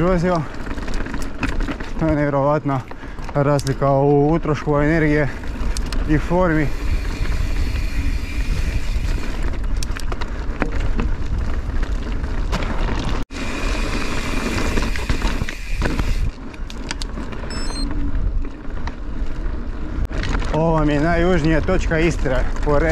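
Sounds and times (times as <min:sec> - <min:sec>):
bike clicking and rattling: 0:00.0 - 0:22.9
bike tyre noise: 0:00.0 - 0:22.9
wind rush on microphone: 0:05.0 - 0:12.5.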